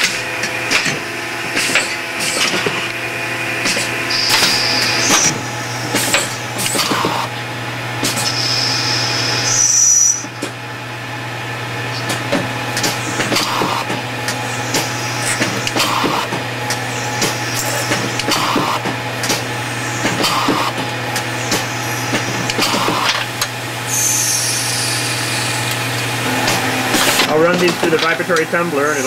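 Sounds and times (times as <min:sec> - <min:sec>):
high steady whine: 0:00.0 - 0:10.4, 0:12.6 - 0:29.0
lathe machine hum: 0:00.0 - 0:29.0
coolant spray: 0:22.6 - 0:26.0.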